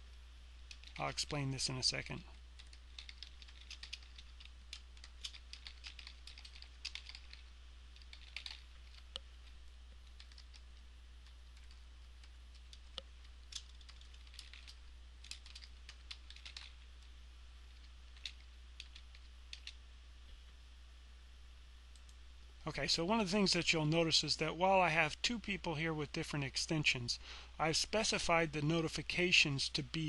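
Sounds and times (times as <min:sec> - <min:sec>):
low steady hum: 0:00.0 - 0:30.0
keyboard typing: 0:00.7 - 0:01.0, 0:02.6 - 0:16.9, 0:17.7 - 0:19.8.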